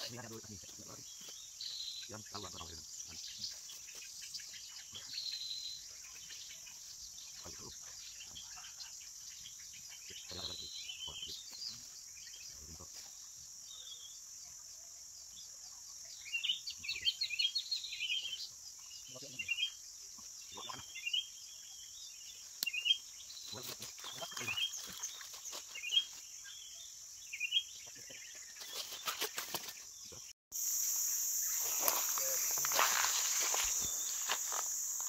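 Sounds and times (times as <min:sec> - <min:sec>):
birds chirping and twittering: 0:00.0 - 0:35.0
insects droning: 0:00.0 - 0:35.0.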